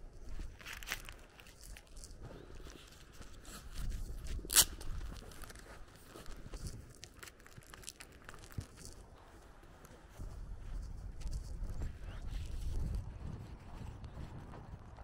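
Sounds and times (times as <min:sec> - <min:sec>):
plastic bag crinkling: 0:00.2 - 0:09.1.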